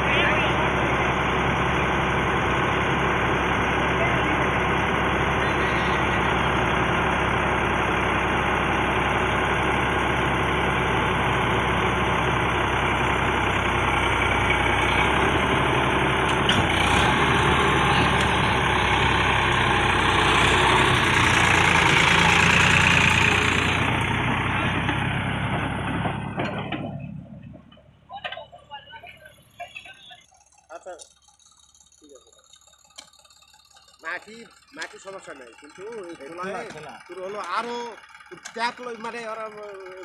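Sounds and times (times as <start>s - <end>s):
tractor diesel engine running: 0.0s - 40.0s.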